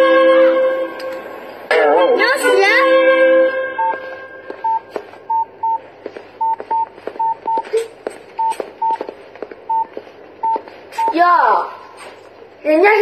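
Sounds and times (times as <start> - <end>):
phone keypad beeps: 4.6 - 5.8, 6.4 - 7.8, 8.4 - 9.0, 9.7 - 11.2.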